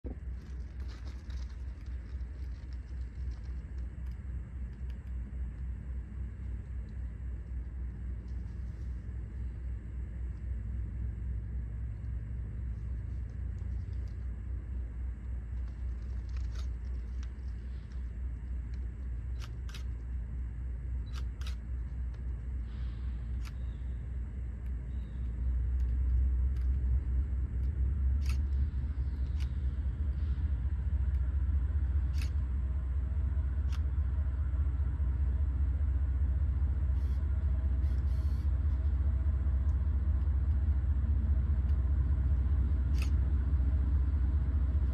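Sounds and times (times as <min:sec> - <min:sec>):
diesel locomotive rumble: 0:00.0 - 0:44.9
faint clicks: 0:00.4 - 0:08.7, 0:23.3 - 0:23.9, 0:24.6 - 0:27.0, 0:27.6 - 0:30.4, 0:42.9 - 0:43.3.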